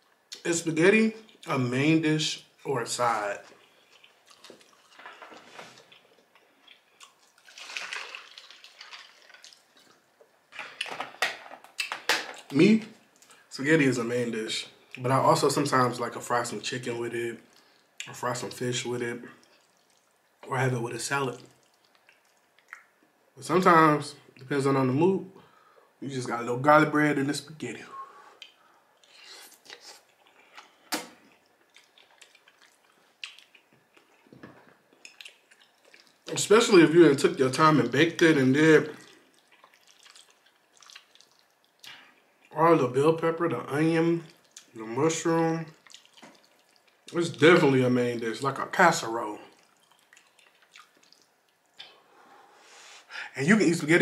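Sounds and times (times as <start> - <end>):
slurping and chewing: 3.4 - 12.5, 28.4 - 36.3, 39.0 - 42.5, 45.7 - 47.2, 49.5 - 52.1
juice poured into a glass: 7.4 - 9.6.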